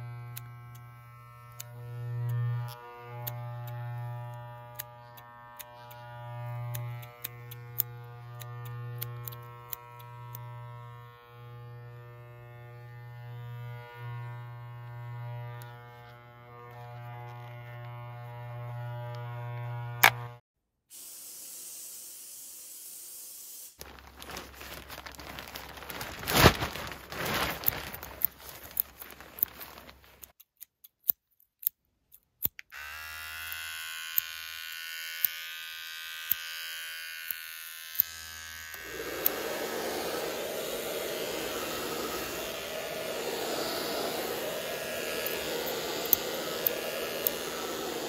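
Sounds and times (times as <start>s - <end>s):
hair clipper buzzing: 0.0s - 20.4s, 32.7s - 48.0s
spray can hissing: 20.9s - 23.7s, 38.8s - 48.0s.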